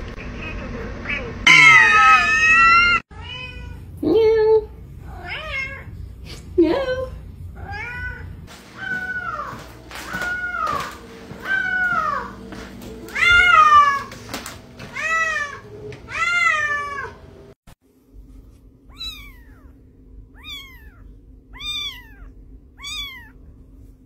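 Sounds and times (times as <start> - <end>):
cat meowing: 1.1 - 3.8, 18.9 - 23.4
kitten high-pitched meows: 18.9 - 19.8, 20.4 - 21.0, 21.6 - 23.4.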